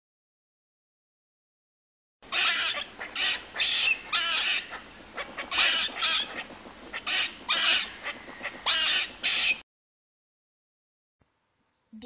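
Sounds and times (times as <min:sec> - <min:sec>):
squirrel barking calls: 0:02.2 - 0:09.6.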